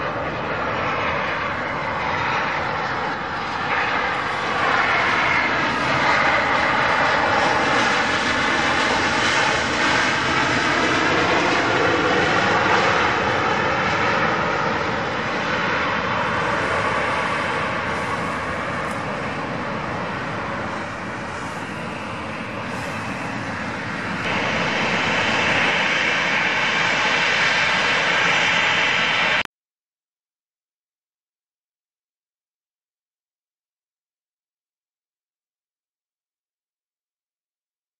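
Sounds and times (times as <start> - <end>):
jet engines roaring: 0.0 - 29.5.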